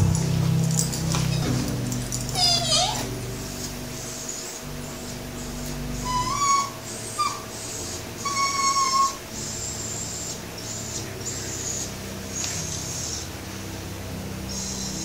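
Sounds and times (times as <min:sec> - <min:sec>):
dog whining: 0:01.0 - 0:03.2, 0:04.0 - 0:13.7.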